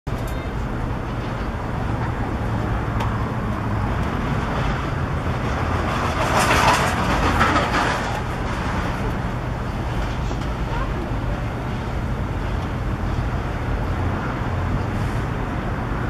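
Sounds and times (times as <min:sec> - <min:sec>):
crowd murmur: 0:06.3 - 0:13.6.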